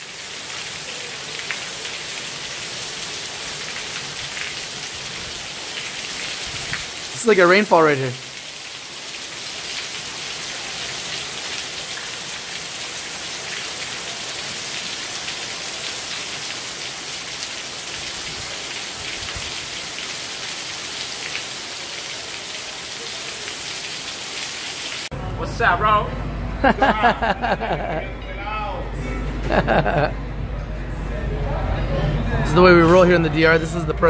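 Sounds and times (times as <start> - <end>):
heavy rain hissing: 0.0 - 25.1.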